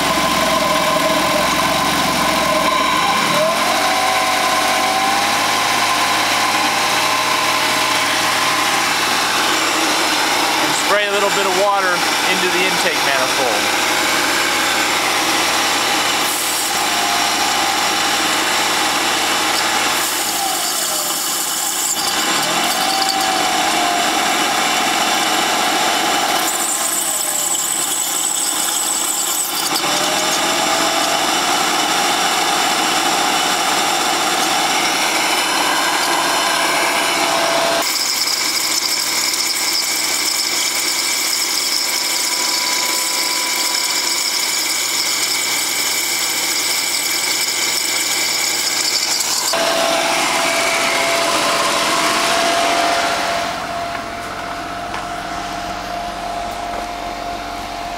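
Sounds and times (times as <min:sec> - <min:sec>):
hose spraying water: 0:04.9 - 0:24.8.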